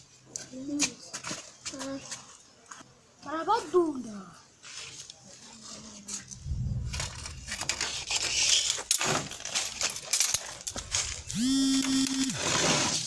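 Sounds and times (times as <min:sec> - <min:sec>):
rustling: 0:05.6 - 0:13.0.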